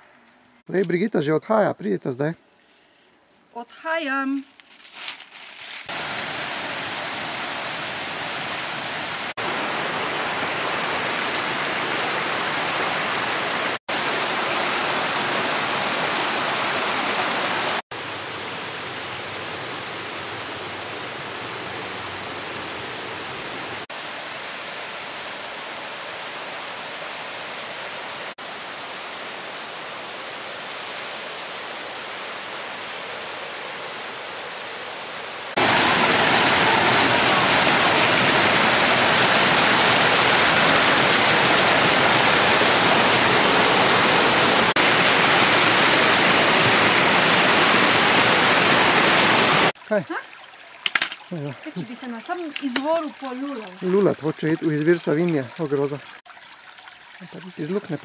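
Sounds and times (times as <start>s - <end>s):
waterfall rushing: 5.9s - 50.2s.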